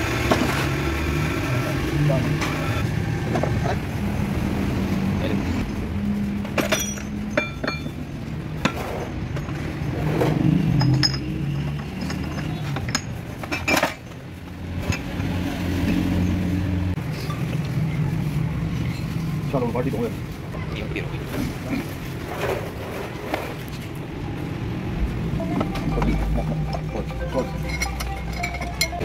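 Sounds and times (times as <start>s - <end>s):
steel gears clinking: 6.4s - 9.6s, 10.6s - 14.2s, 25.4s - 29.0s.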